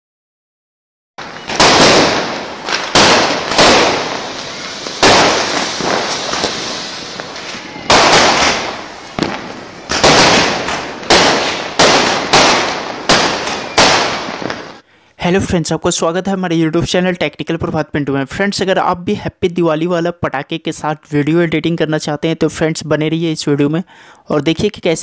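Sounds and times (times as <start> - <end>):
firecrackers banging: 1.2 - 14.8
crackling hiss: 1.2 - 15.2.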